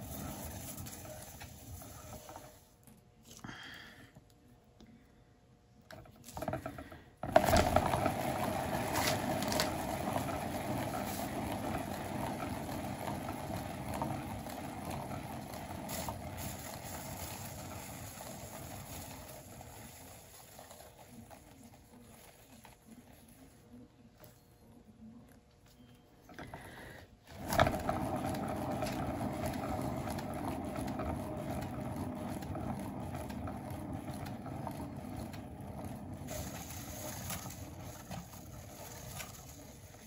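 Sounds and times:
turntable rumbling whir: 0:06.4 - 0:20.0, 0:27.3 - 0:40.0.

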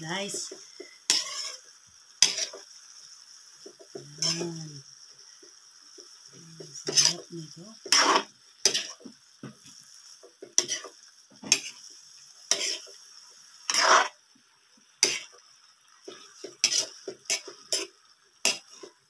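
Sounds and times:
vegetables sizzling: 0:00.0 - 0:19.0
metal spatula scraping wok: 0:00.2 - 0:02.7, 0:04.2 - 0:04.5, 0:06.6 - 0:09.0, 0:10.5 - 0:14.2, 0:15.0 - 0:15.4, 0:16.1 - 0:19.0.

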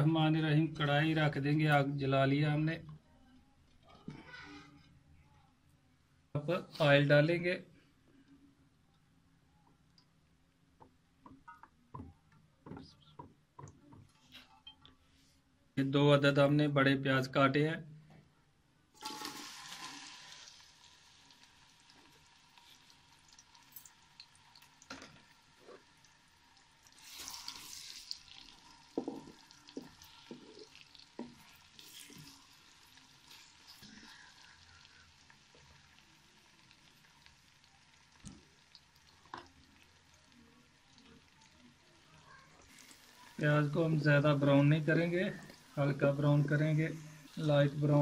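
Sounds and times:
onions sizzling in hot oil: 0:19.0 - 0:48.0.

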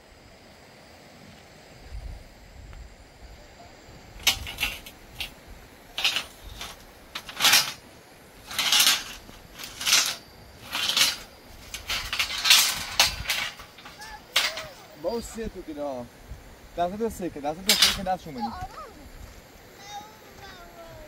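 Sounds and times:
steel rods clanking and scraping: 0:04.2 - 0:15.5, 0:17.5 - 0:18.4.

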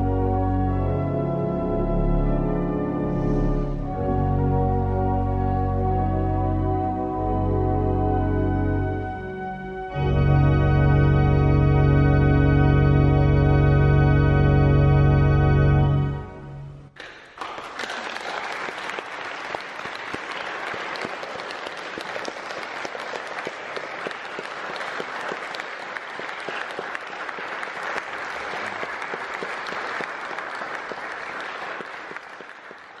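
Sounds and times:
pipe organ chord: 0:00.0 - 0:17.0
audience applauding: 0:17.0 - 0:33.0.

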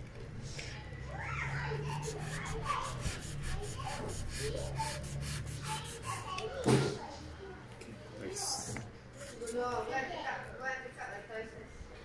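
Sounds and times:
knife sawing through foam: 0:01.8 - 0:06.3.

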